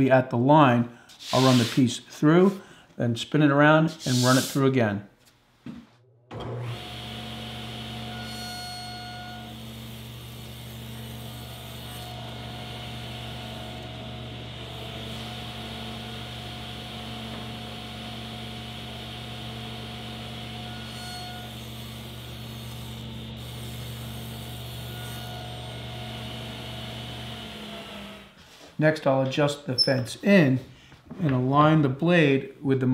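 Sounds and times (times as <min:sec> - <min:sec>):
table saw cutting: 0:06.3 - 0:28.4.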